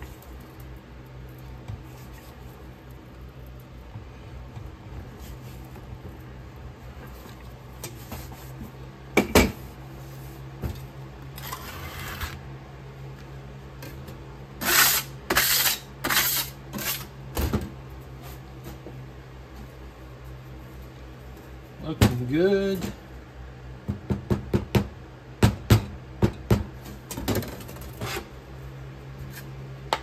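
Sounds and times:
putty knife scraping sand: 11.4 - 12.4, 14.6 - 17.1.

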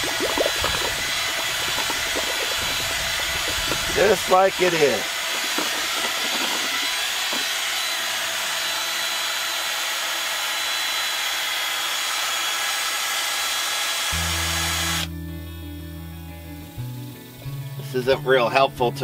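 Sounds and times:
cordless drill mixing paint: 0.0 - 15.1.

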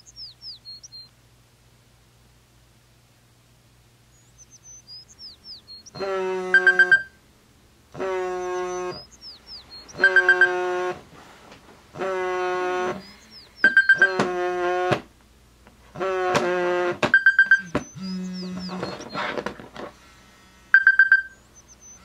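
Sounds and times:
short bird-like chirps: 0.0 - 1.1, 4.2 - 7.0, 13.0 - 14.2, 17.2 - 19.3, 20.8 - 22.0
phone alarm chime: 6.6 - 7.2, 10.0 - 10.6, 13.6 - 14.2, 17.2 - 18.1, 20.7 - 21.4.

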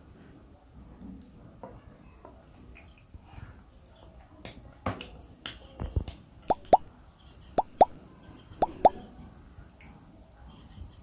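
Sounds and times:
quick pitched pops: 6.5 - 6.9, 7.6 - 8.0, 8.6 - 9.0.

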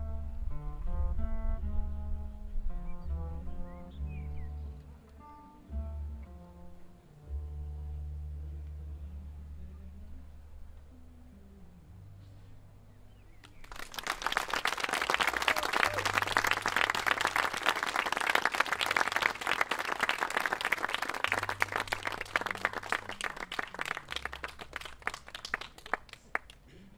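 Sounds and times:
audience applauding: 13.4 - 26.7.

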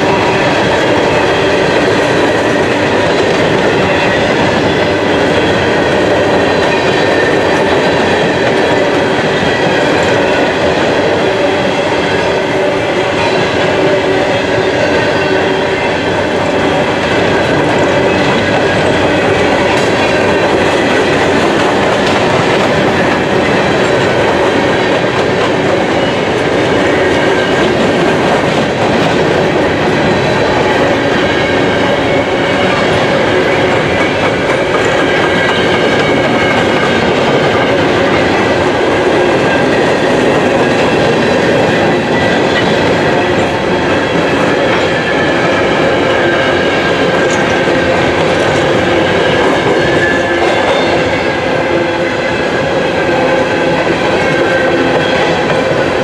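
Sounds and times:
steel wheels rumbling on rails: 0.0 - 56.0.

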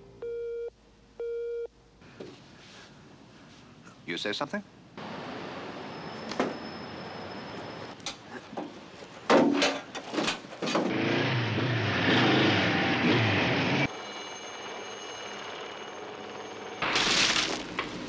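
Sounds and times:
high ringing tone: 13.9 - 16.9.

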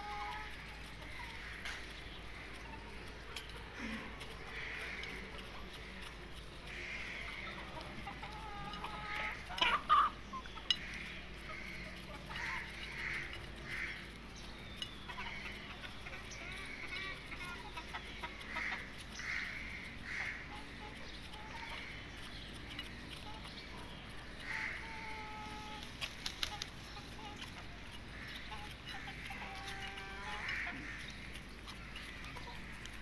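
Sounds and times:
chickens clucking softly: 0.0 - 33.0
chicks peeping: 0.0 - 33.0.

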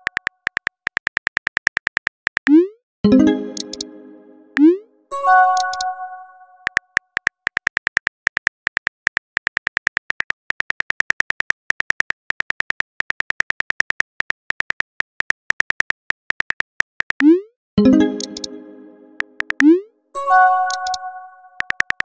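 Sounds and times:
phone keyboard key clicks: 0.0 - 2.5, 6.7 - 17.2
chime: 3.1 - 6.5, 17.8 - 19.3.

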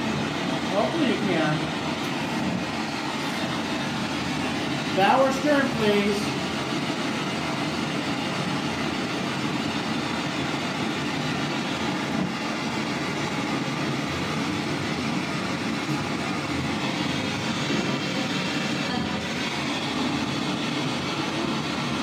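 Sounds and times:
choppy radio static: 15.8 - 22.0.

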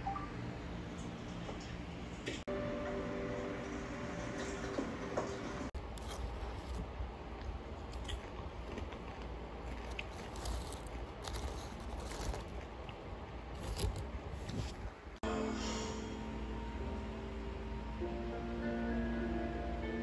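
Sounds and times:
music: 2.5 - 5.7, 15.2 - 20.0
chip bag rustling: 9.6 - 12.7, 13.6 - 14.9.

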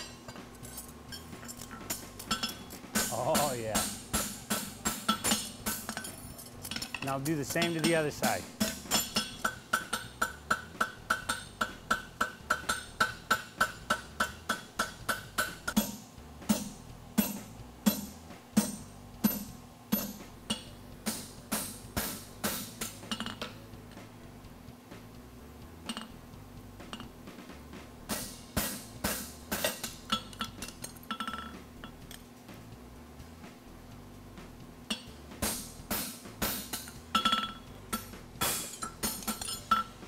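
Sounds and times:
hammer striking steel on anvil: 1.1 - 23.5, 28.1 - 32.2, 34.9 - 40.0.

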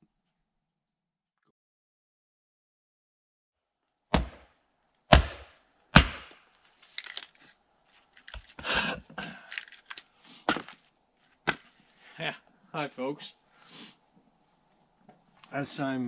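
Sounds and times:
axe splitting wood cracks: 4.1 - 4.5, 5.1 - 6.4.

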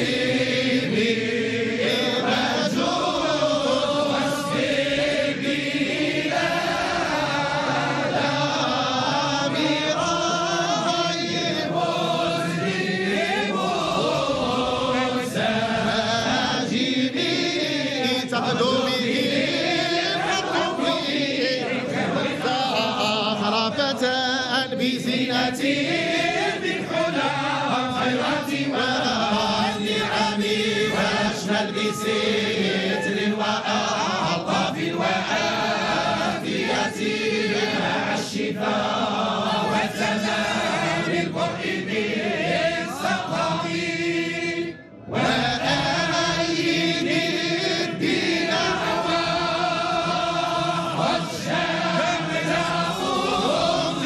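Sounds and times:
men chanting together: 0.0 - 54.0.

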